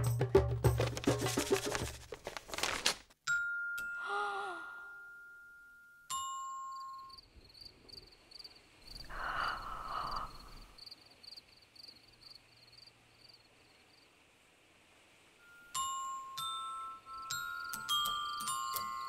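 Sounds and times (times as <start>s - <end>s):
crickets chirping: 6.7s - 14.2s.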